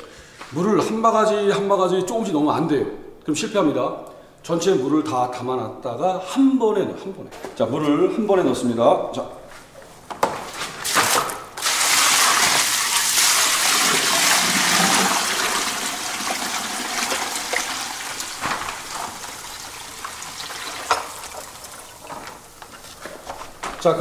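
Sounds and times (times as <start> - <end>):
water gushing and splashing: 11.6 - 22.2.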